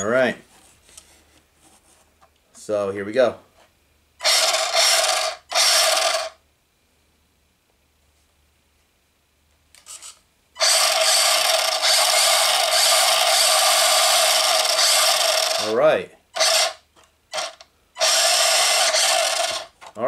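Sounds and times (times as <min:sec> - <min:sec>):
toy car motor whirring: 0:04.2 - 0:06.4, 0:09.8 - 0:15.7, 0:16.3 - 0:19.9.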